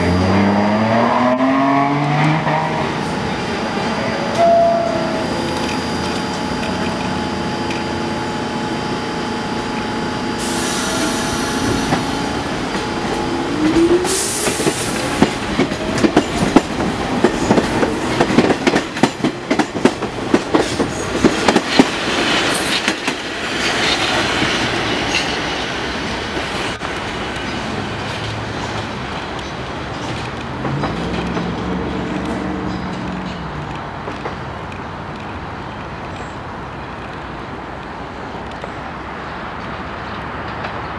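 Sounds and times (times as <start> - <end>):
train steady tones: 0.1 - 40.9
train motor whine: 2.0 - 15.2
train brake hiss: 10.3 - 12.1, 14.0 - 15.1
train wheels clacking over rail joints: 11.6 - 36.3.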